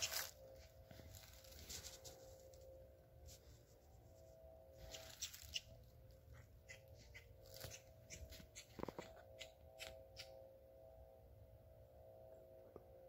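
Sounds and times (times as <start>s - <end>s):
footsteps crunching dry leaves: 0.0s - 2.5s, 7.4s - 7.9s.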